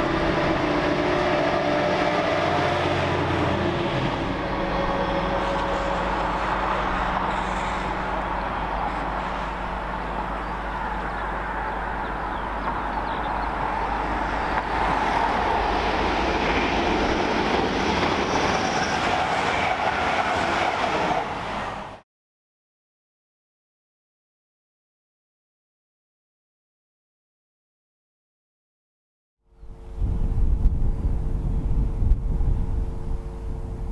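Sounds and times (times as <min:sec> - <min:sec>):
passenger train rushing past: 0:00.0 - 0:22.0
low rumble with hum: 0:29.6 - 0:33.9.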